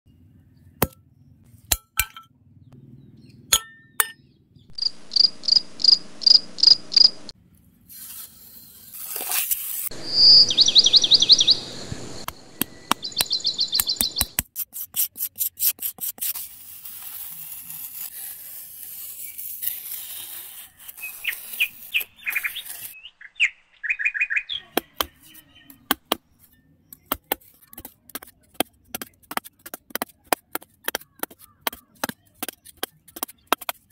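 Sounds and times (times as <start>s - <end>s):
high chirps and trills: 4.7s - 7.3s
metal spade cutting into sand: 14.6s - 23.0s.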